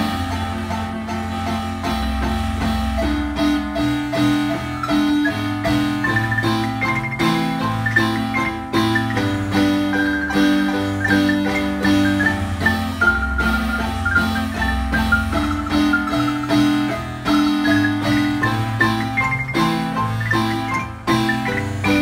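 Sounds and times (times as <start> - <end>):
marimba ensemble playing: 4.4 - 22.0.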